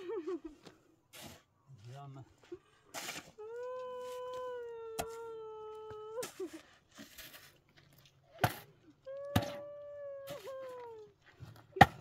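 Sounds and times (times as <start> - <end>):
metal shovel striking stony ground: 8.3 - 8.7, 11.6 - 12.0.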